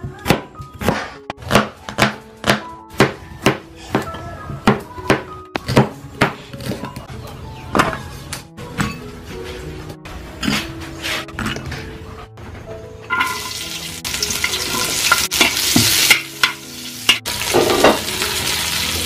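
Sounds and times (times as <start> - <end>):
background music sustained notes: 0.0 - 19.0.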